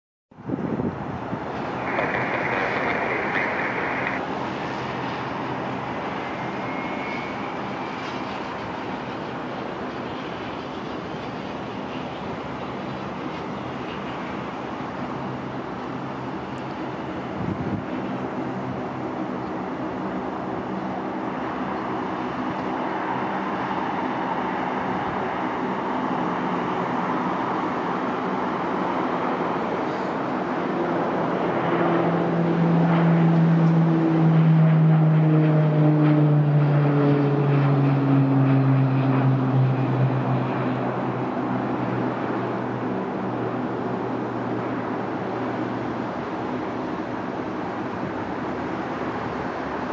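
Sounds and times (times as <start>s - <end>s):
distant turboprop engines droning: 0.3s - 49.9s
faint thin whine: 1.5s - 5.4s, 6.0s - 14.3s.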